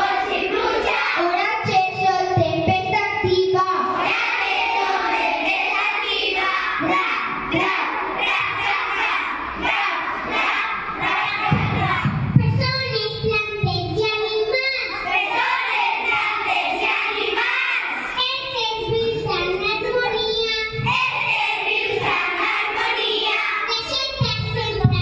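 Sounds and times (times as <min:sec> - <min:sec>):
young children singing: 0:00.0 - 0:25.0.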